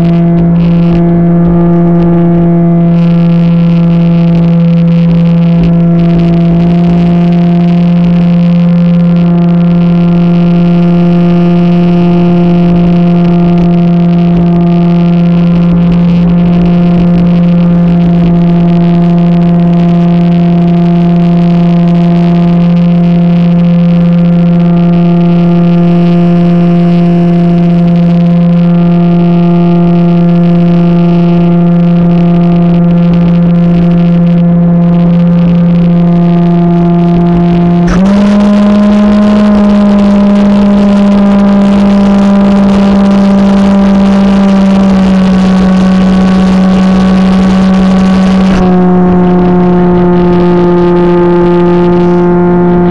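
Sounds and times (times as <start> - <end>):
model plane motor and propeller drone: 37.4 - 50.8.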